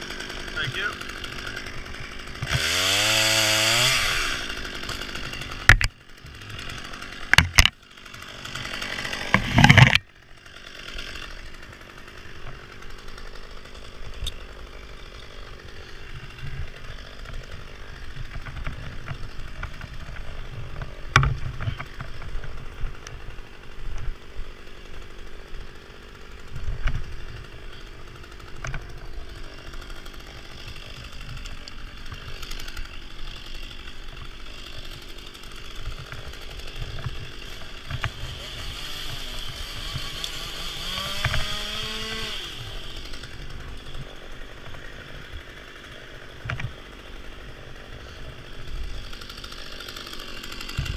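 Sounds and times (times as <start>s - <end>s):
chainsaw running at high revs: 0.0s - 50.9s
climbing hardware clicks and knocks: 7.3s - 7.7s, 9.3s - 10.1s.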